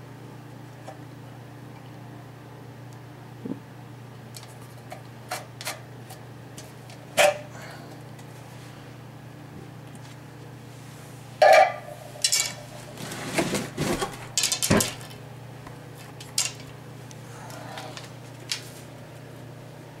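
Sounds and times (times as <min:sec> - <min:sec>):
wooden arrows clattering: 0:12.2 - 0:12.7, 0:13.9 - 0:15.2, 0:16.2 - 0:16.7.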